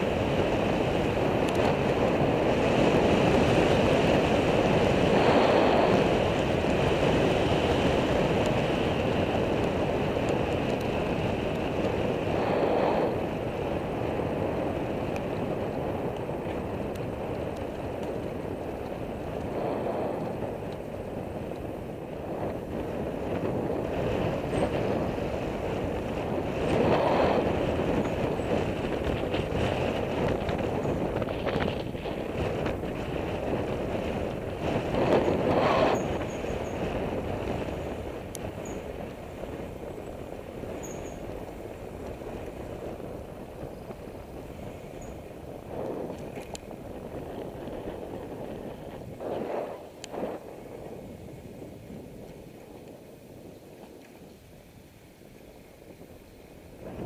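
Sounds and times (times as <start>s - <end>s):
wind noise on microphone: 0.0s - 57.0s.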